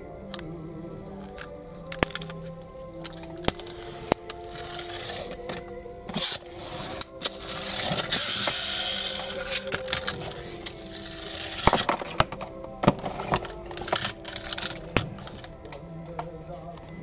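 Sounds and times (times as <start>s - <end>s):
toy wheels whirring: 1.2s - 15.6s
toy scraping on table: 3.1s - 15.5s.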